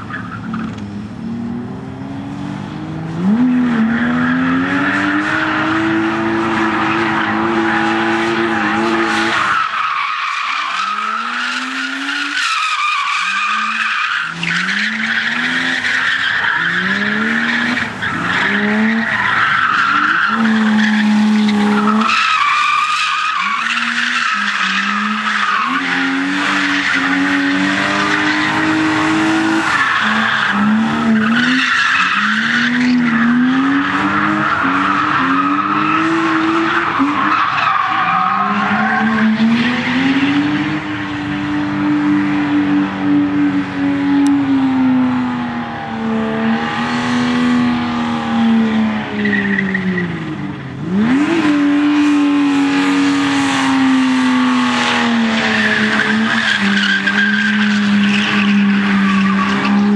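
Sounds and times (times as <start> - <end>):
car engine revving high: 0.0 - 59.9
tyres squealing: 4.0 - 39.4.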